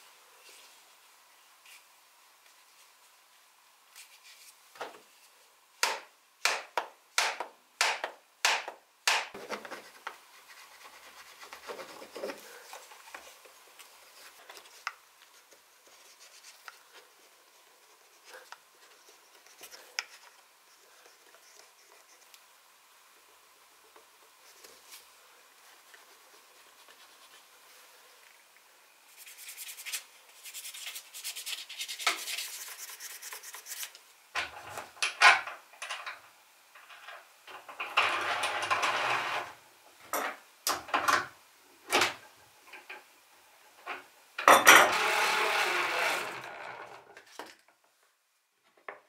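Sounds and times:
sharp knocks on wooden form: 5.8s - 9.4s.

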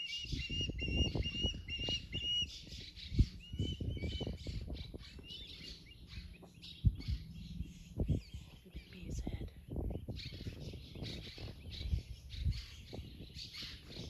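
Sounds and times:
bird whistled chirps: 0.0s - 7.9s
low rumble: 1.1s - 13.2s.

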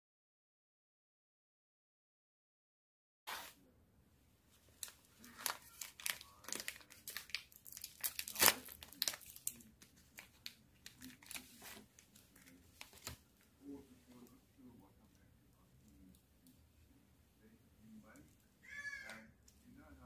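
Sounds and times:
plastic wrapper crinkling: 4.7s - 13.3s
plastic wrapper tearing: 4.8s - 13.2s.

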